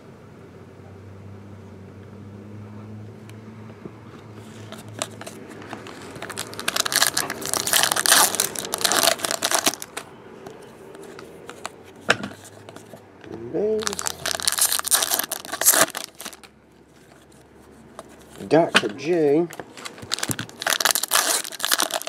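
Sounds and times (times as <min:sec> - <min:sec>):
foil wrapper crinkling and tearing: 0:04.8 - 0:10.1, 0:13.8 - 0:16.5, 0:19.5 - 0:22.0.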